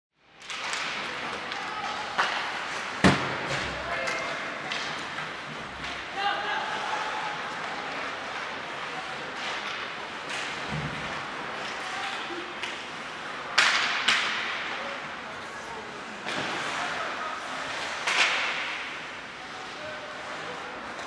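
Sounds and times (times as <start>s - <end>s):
puck and stick cracks: 0.4s - 6.1s, 9.3s - 14.7s, 17.8s - 19.1s
murmur of spectators: 0.4s - 21.0s.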